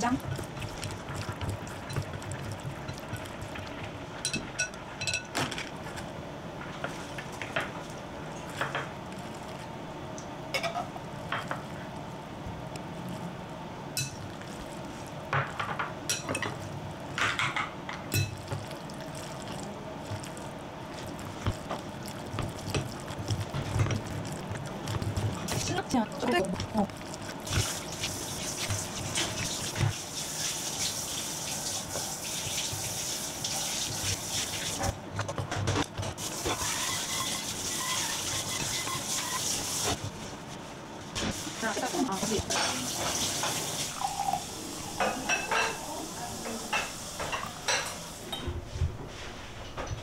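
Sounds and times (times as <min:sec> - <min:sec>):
wet stirring in a bowl: 0:00.0 - 0:06.1, 0:06.8 - 0:09.9, 0:11.1 - 0:17.4, 0:18.0 - 0:44.0
chopsticks tapping glass: 0:04.3 - 0:05.3.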